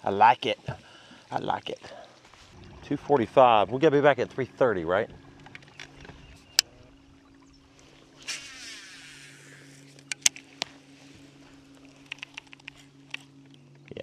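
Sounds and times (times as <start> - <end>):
faint steady hum: 0.0 - 14.0
brief rushing hiss: 8.2 - 9.9.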